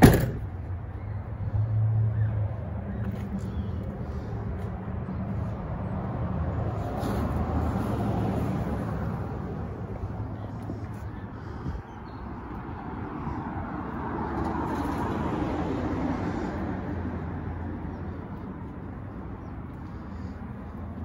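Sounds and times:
low traffic rumble: 0.0 - 21.0
vehicle passing: 1.3 - 21.0.

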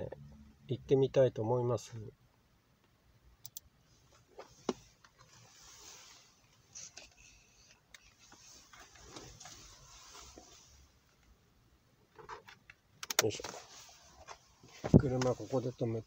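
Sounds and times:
faint rustling: 3.9 - 11.3, 13.2 - 16.0.

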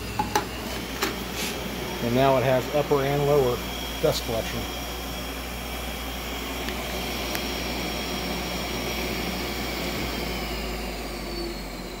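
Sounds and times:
dust extractor whirring: 0.0 - 12.0.

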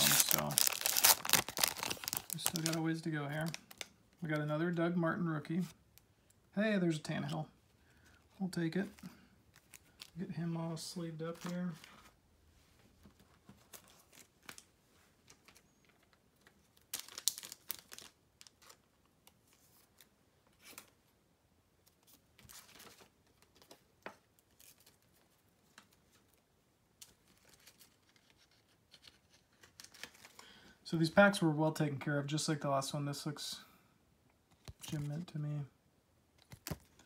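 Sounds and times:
cards and plastic rustling: 0.0 - 4.7, 7.1 - 12.2, 13.0 - 21.0, 21.8 - 30.7, 34.5 - 35.3, 36.4 - 37.0.

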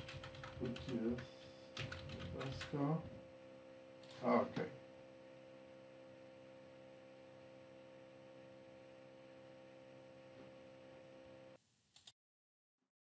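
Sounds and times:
faint electrical hum and hiss: 0.0 - 12.0.

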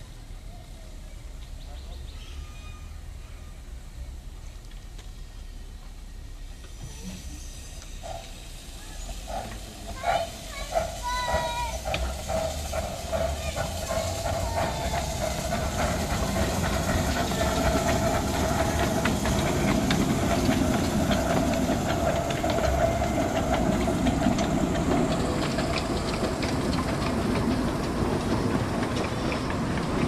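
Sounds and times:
wheels clicking on rails: 2.9 - 30.0
steam hissing: 6.1 - 30.0.

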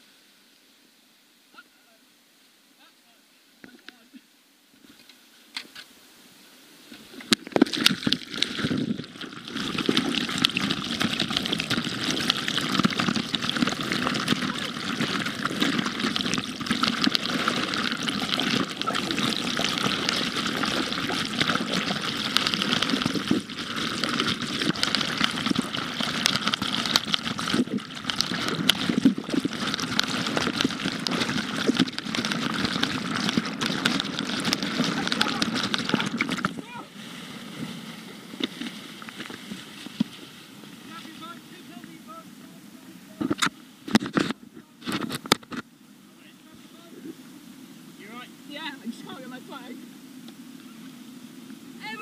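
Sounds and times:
choppy water splashes: 6.9 - 45.6
loud rush of water: 7.7 - 44.1, 45.9 - 52.0.

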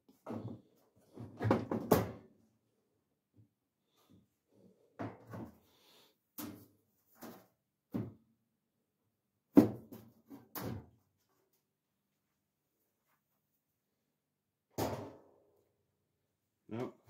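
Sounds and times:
dryer panel knocking and clattering: 0.2 - 2.3.

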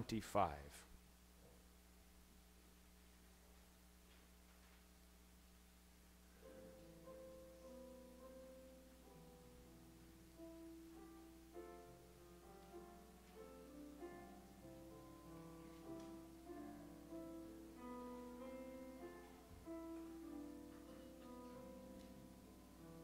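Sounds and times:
slow hymn on keyboard: 6.2 - 23.0.

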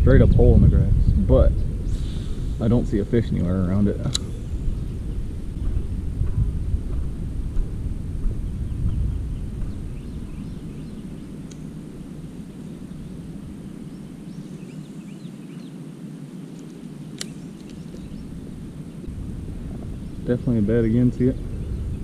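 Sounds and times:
wind rumble on microphone: 0.0 - 22.0
sharp click: 4.0 - 4.4, 16.6 - 18.1
faint bird chirps: 12.4 - 19.1.

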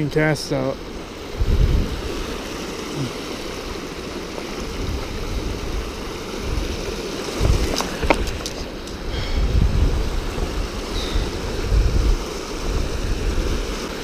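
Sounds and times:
river water rushing over rocks: 0.0 - 14.0
low rumbling bumps: 7.4 - 12.9.

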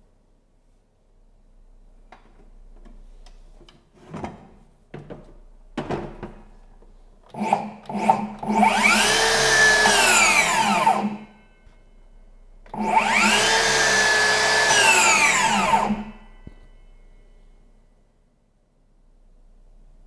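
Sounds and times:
circular saw whining: 7.4 - 11.9, 12.7 - 17.4.

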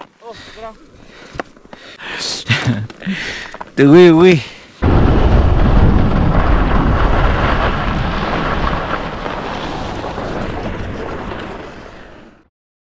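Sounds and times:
wind rushing over microphone: 4.8 - 12.0
skis sliding on snow: 7.5 - 12.4.

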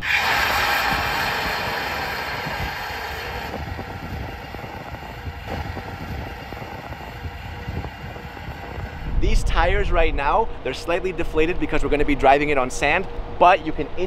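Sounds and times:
loud hiss: 0.0 - 10.7.

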